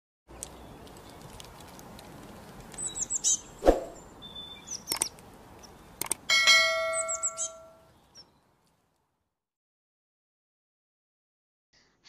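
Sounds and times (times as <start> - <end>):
bird chirps: 2.8 - 8.5
sharp clicks: 4.8 - 5.3, 6.0 - 6.3.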